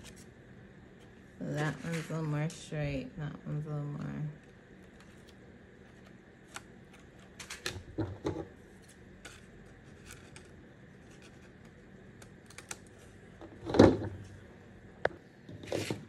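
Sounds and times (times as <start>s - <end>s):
paper rustling and scissors clicking: 8.8s - 13.0s.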